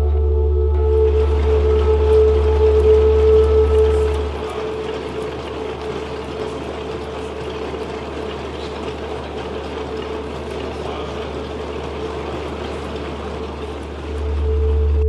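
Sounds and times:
low drone: 0.0 - 7.7, 14.0 - 15.0.

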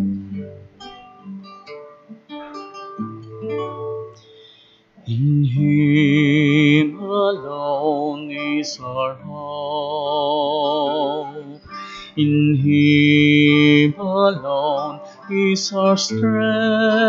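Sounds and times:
person singing a hymn: 5.0 - 17.0.

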